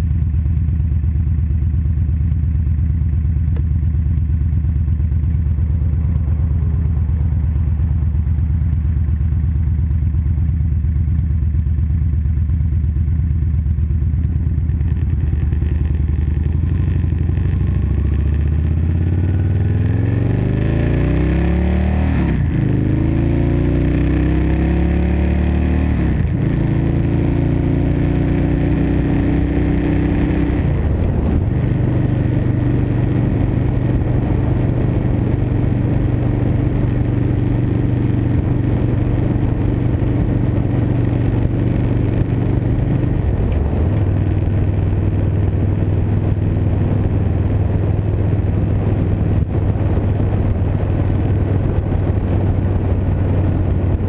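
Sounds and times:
motorcycle engine running: 0.0 - 54.0
wind rush: 30.4 - 36.4, 38.4 - 54.0.

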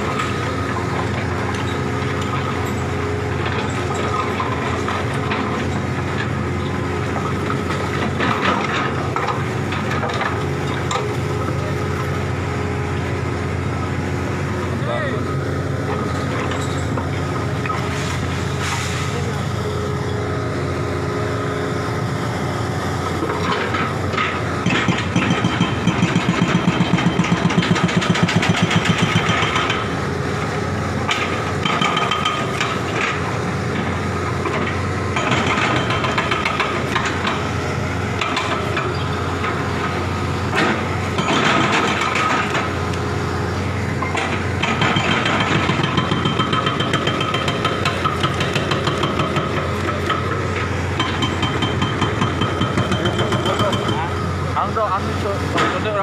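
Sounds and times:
diesel engine running: 0.0 - 56.0
hydraulic breaker hammering wall: 24.3 - 29.9, 44.0 - 54.1.

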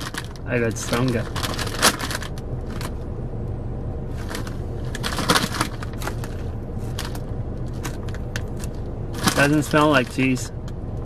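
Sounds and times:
plastic chip bag crinkling: 0.0 - 2.9, 7.8 - 9.8
steady low hum: 0.0 - 11.0.

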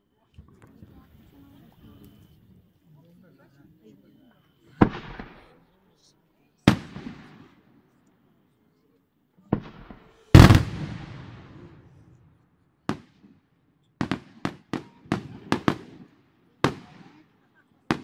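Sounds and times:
firework shells bursting: 9.6 - 11.8
firework boom with rolling echo: 9.6 - 12.1.

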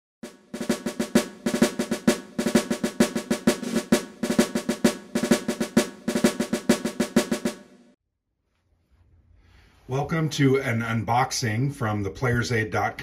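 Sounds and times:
snare drum cadence with rolls: 0.2 - 8.0.

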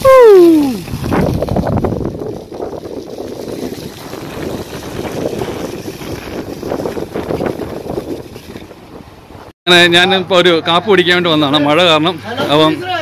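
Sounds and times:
wind buffeting microphone: 0.6 - 9.5.

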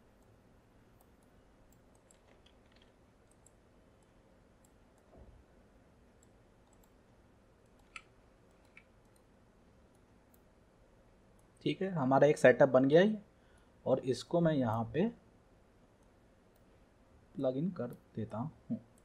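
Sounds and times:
computer mouse and keyboard clicks: 0.9 - 5.2, 6.2 - 7.0, 7.6 - 9.3.

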